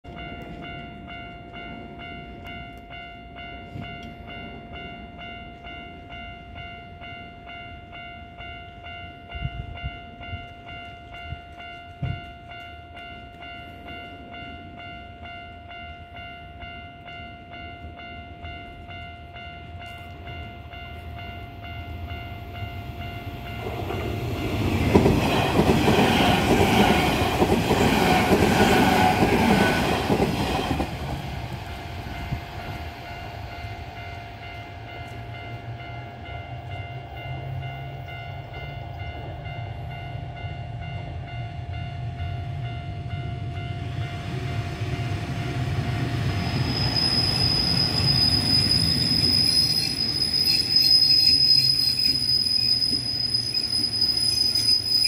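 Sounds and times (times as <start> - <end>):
rail car approaching with rumble: 0.0 - 55.0
level-crossing alarm ringing: 0.1 - 55.0
train rumbling past: 0.1 - 55.0
high wheel squeal: 46.4 - 55.0.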